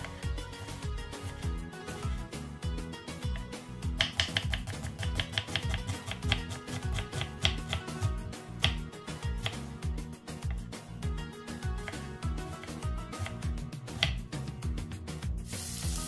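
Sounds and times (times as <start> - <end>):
background music with beat: 0.0 - 16.0
knife slicing onion on board: 3.3 - 9.7, 11.8 - 14.3.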